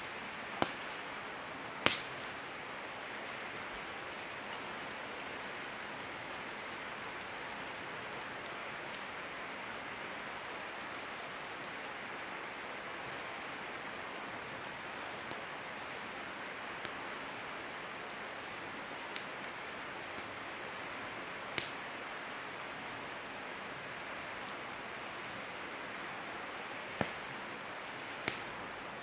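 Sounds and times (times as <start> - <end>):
campfire crackling: 0.0 - 29.0
fire pops: 0.2 - 1.0, 1.8 - 2.4, 19.1 - 19.4, 21.5 - 21.8, 26.9 - 28.6.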